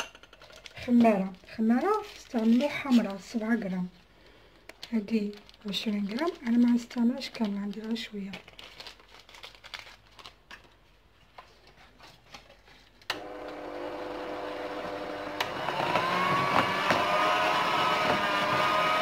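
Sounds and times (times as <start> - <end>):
electric hand mixer running: 13.1 - 19.0.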